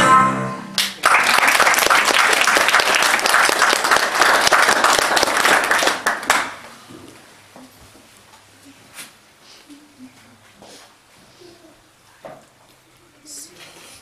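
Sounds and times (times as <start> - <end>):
music: 0.0 - 0.8
audience applauding: 0.8 - 6.7.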